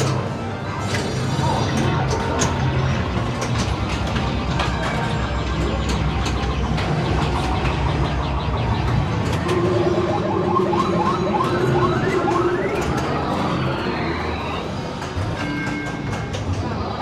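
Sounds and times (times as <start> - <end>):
electronic pinball game sounds: 0.0 - 17.0
rising electronic tones: 5.2 - 14.8
electronic pitch sweeps: 7.0 - 14.6.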